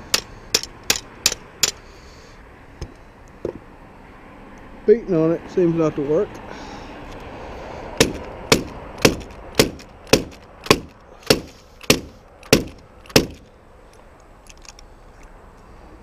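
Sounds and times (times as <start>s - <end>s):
sharp knocks on nailer: 8.0s - 13.4s.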